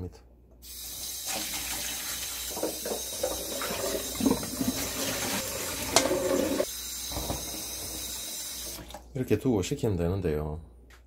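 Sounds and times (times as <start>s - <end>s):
tap water running into a bowl: 1.2s - 9.0s.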